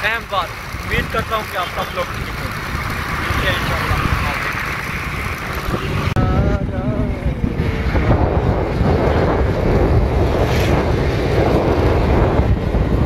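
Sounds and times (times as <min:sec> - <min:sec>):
wind buffeting microphone: 0:00.6 - 0:13.0.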